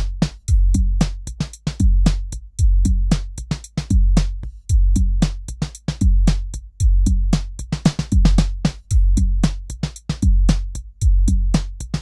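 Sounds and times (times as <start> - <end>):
bass drum hits: 8.1 - 9.6.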